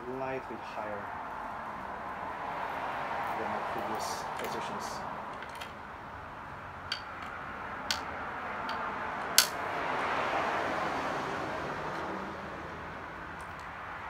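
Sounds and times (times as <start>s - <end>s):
soft steady background noise: 0.0s - 10.4s.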